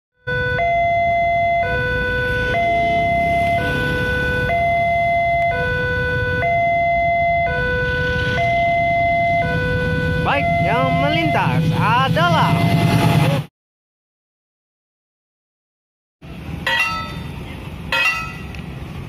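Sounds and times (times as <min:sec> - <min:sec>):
two-tone level-crossing alarm: 0:00.2 - 0:13.1.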